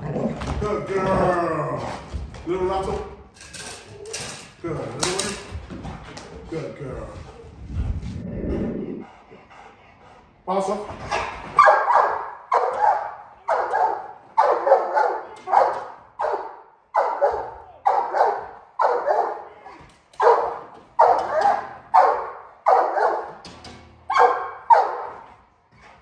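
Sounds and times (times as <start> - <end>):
large dog barking: 11.2 - 19.5, 20.2 - 23.4, 24.1 - 25.3.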